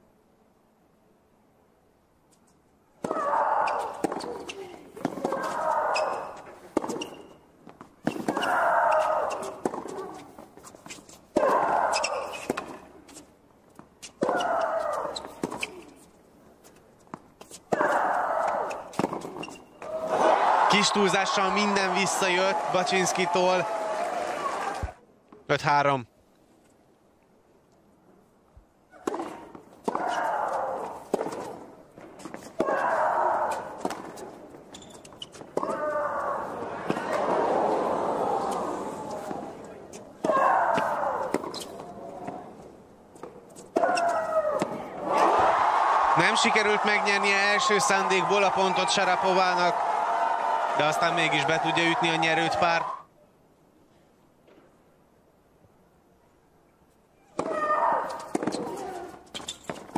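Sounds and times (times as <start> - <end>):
player shrieking: 3.1 - 4.5, 5.2 - 6.4, 8.3 - 9.6, 11.4 - 12.4, 17.8 - 18.9, 29.9 - 31.0, 32.6 - 33.8, 40.2 - 41.4, 43.8 - 48.7, 57.4 - 59.2
racket hitting ball: 29.0 - 34.4, 57.4 - 58.9.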